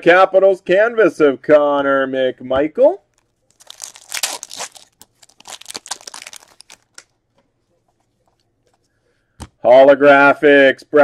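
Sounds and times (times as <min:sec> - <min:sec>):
foil wrapper tearing and crinkling: 0:03.1 - 0:07.1.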